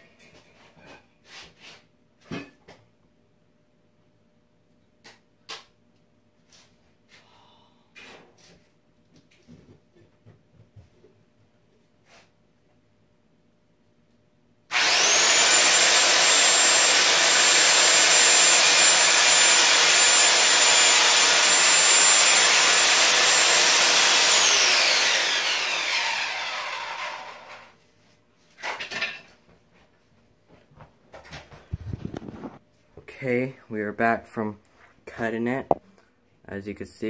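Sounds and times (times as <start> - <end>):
electric power saw whining: 14.7 - 27.7.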